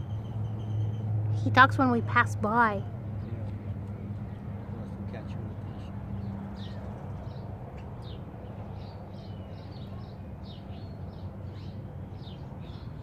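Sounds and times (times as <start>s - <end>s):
small birds chirping: 3.2s - 13.0s.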